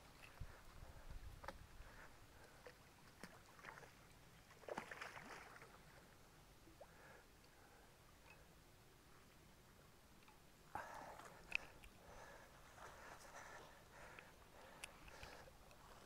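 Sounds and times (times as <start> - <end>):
soft water splash: 3.0 - 5.8
faint clicks: 10.2 - 12.2, 14.0 - 15.8.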